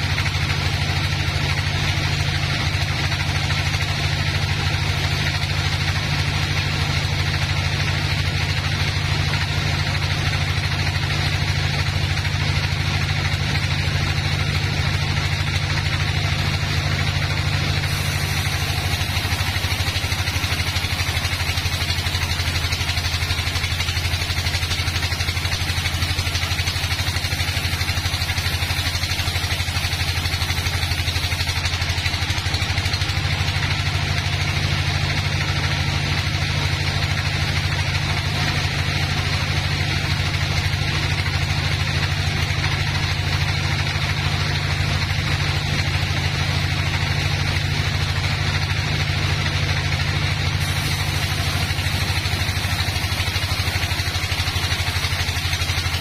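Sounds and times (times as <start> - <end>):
sawmill drive drone: 0.0 - 56.0
saw blade cutting hiss: 16.2 - 34.2, 50.3 - 56.0.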